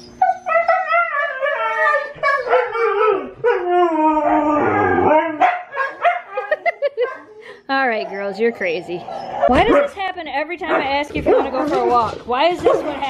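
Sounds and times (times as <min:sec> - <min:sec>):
dogs howling: 0:00.0 - 0:13.0.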